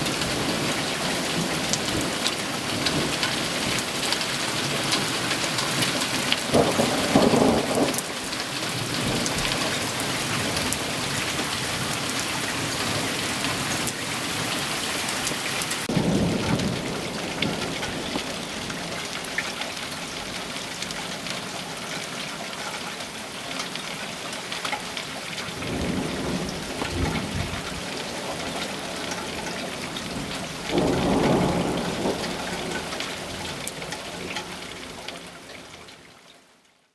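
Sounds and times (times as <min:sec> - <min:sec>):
thunder rumbling: 0:00.0 - 0:12.0, 0:15.8 - 0:20.9, 0:25.5 - 0:34.9
steady rain falling: 0:00.0 - 0:36.9.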